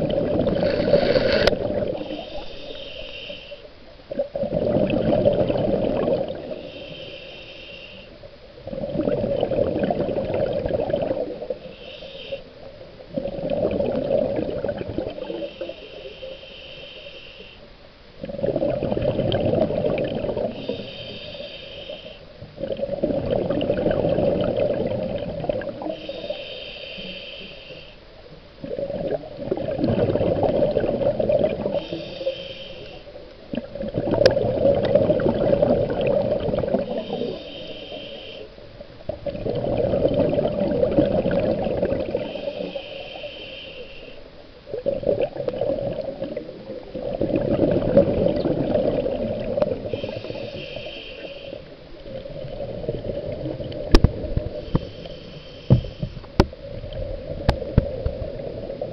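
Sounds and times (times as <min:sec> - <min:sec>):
exhaled bubbles rumbling: 0:00.0 - 0:02.4, 0:04.0 - 0:06.6, 0:08.6 - 0:11.7, 0:12.6 - 0:15.7, 0:18.2 - 0:20.8, 0:22.4 - 0:26.0, 0:28.2 - 0:32.0, 0:33.1 - 0:37.4, 0:38.6 - 0:42.8, 0:44.6 - 0:50.5, 0:51.6 - 0:55.1, 0:55.7 - 0:58.9
regulator inhale hiss: 0:00.5 - 0:03.9, 0:06.4 - 0:08.3, 0:11.5 - 0:12.7, 0:15.1 - 0:17.8, 0:20.4 - 0:22.5, 0:25.7 - 0:28.2, 0:31.6 - 0:33.3, 0:36.8 - 0:38.8, 0:42.0 - 0:44.6, 0:49.5 - 0:52.2, 0:54.3 - 0:56.5.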